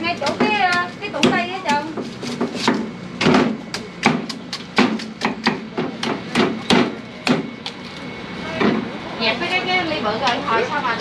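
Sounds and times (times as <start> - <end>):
knife chopping coconut on wood: 0.2 - 7.8.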